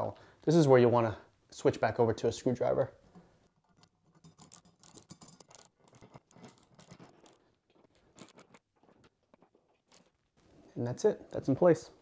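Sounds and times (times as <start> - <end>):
screwdriver scratching and clicking: 3.5 - 10.1.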